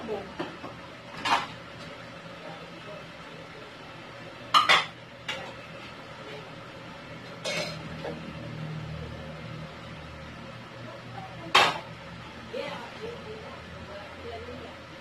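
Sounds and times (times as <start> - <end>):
dishes clinking and clattering: 0.4 - 1.6, 4.5 - 5.7, 7.2 - 8.2, 11.5 - 11.9.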